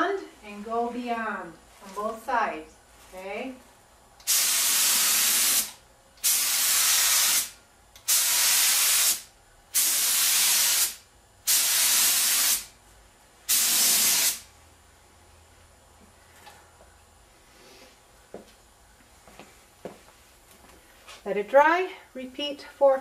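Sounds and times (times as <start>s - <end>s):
spray paint gun hissing: 4.2s - 12.7s, 13.5s - 14.5s.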